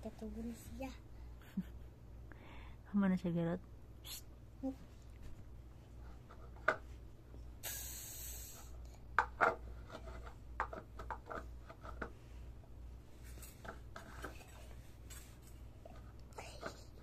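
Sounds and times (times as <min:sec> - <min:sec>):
steady low hum: 0:00.0 - 0:17.0
brief hiss: 0:07.6 - 0:08.7.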